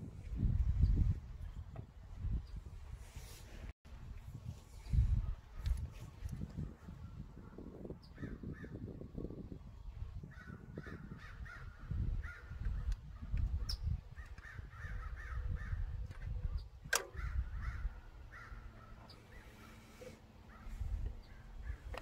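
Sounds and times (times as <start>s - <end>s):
sharp click: 16.8s - 17.2s
crows cawing: 17.2s - 18.9s.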